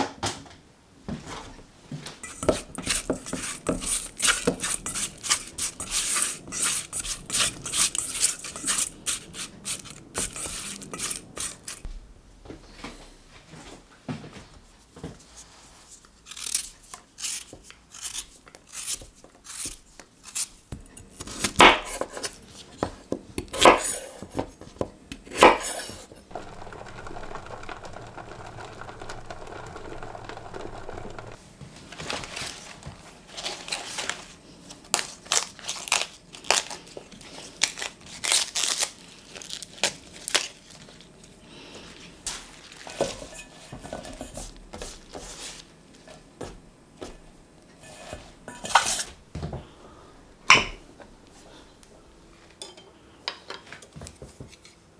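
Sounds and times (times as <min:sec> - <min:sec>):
potatoes being cut: 0:02.2 - 0:11.9, 0:16.2 - 0:22.4, 0:23.4 - 0:24.2
pot boiling: 0:02.2 - 0:12.1, 0:25.4 - 0:31.4
leaves torn and crumpled: 0:32.1 - 0:41.2.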